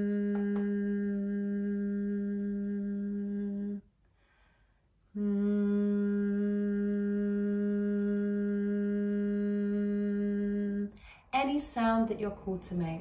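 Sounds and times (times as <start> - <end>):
woman humming a low note: 0.0 - 3.8, 5.1 - 10.9.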